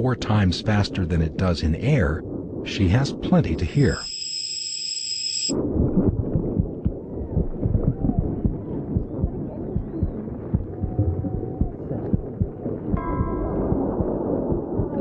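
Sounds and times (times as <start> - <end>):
muffled low rumble: 0.0 - 4.0, 5.5 - 15.0
high steady whine over hiss: 0.0 - 5.5.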